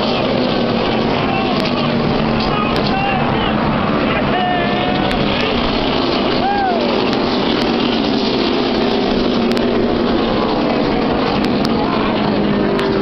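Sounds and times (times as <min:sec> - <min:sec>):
race car engines roaring: 0:00.0 - 0:13.0.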